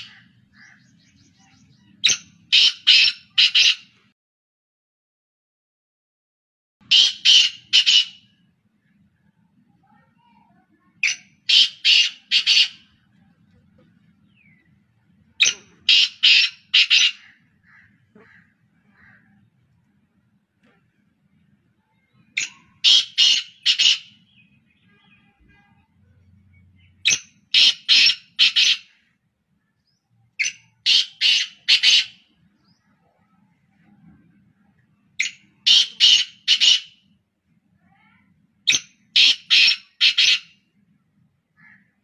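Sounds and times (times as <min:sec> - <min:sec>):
francolins calling: 0:00.0 - 0:04.0, 0:06.8 - 0:09.0, 0:11.0 - 0:13.2, 0:13.8 - 0:19.6, 0:21.9 - 0:33.4, 0:35.1 - 0:37.1, 0:38.7 - 0:40.7.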